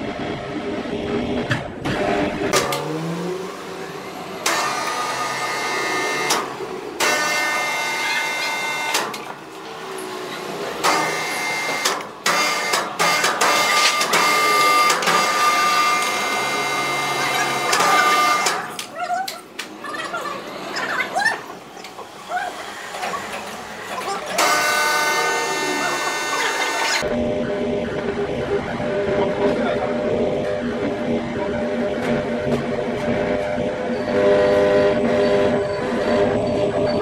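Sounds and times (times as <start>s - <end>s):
electric motor whining: 24.5s - 27.0s.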